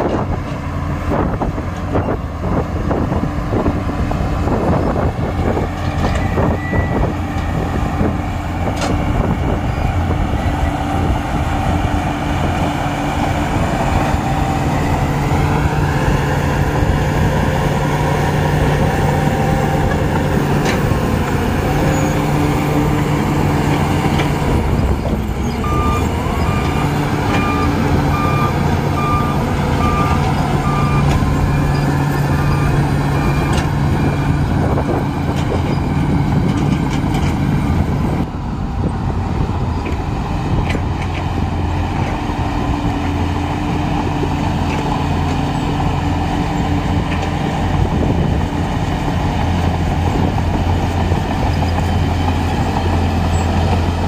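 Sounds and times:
bulldozer diesel engine under load: 0.0s - 54.0s
reversing alarm beeping: 6.0s - 7.2s, 25.6s - 34.4s.

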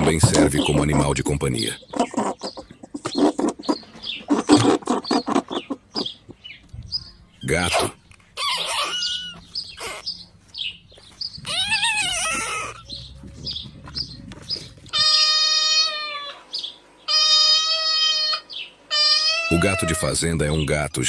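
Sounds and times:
small birds chirping: 0.0s - 21.0s
cat meowing: 8.4s - 10.1s, 11.4s - 13.0s, 14.9s - 16.4s.

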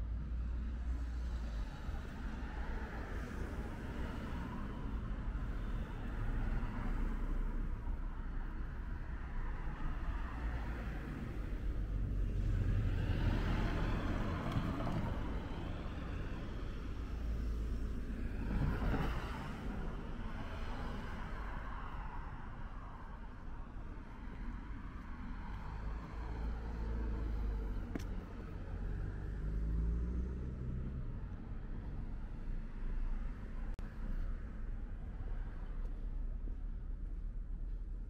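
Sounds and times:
traffic rumble: 0.0s - 38.0s
car passing: 0.8s - 23.2s, 24.1s - 37.7s.

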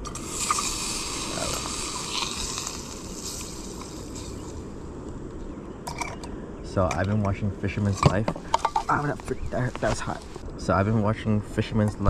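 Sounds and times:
butter sizzling in a pan: 0.0s - 4.7s.

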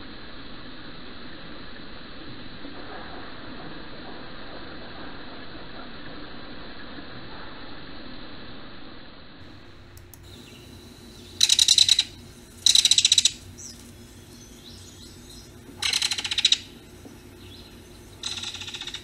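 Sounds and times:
kingfisher rattle call: 10.2s - 19.0s.

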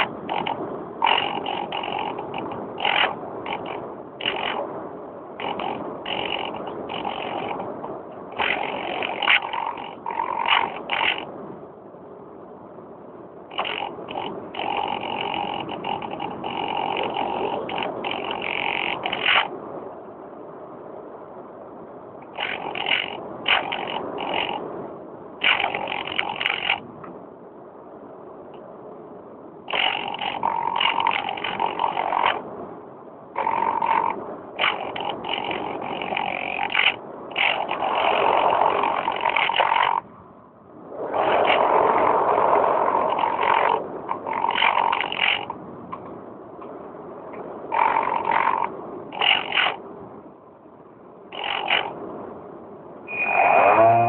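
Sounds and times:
electric motor and propeller whining: 0.0s - 11.3s, 13.5s - 19.6s, 22.3s - 24.8s, 25.4s - 26.8s, 29.7s - 32.4s, 33.4s - 40.0s, 40.9s - 45.6s, 51.3s - 52.0s, 53.1s - 54.0s
rushing wind noise: 0.0s - 54.0s.

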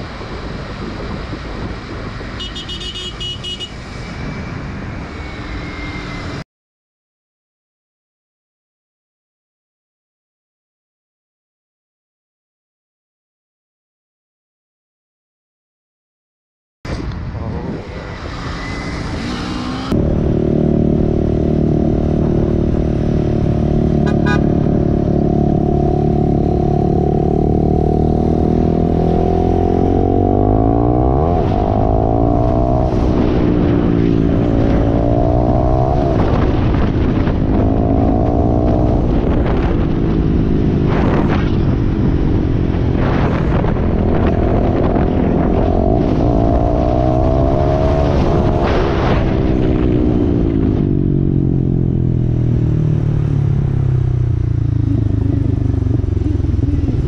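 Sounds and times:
motorcycle engine revving: 17.8s - 57.0s.

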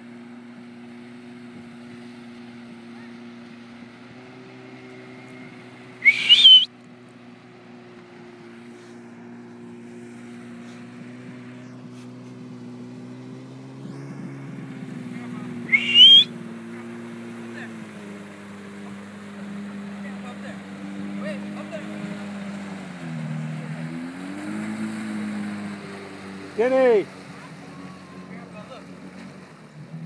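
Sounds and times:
jet ski engines running: 0.0s - 30.0s
loud short rising whistles: 6.0s - 6.7s, 15.7s - 16.4s.

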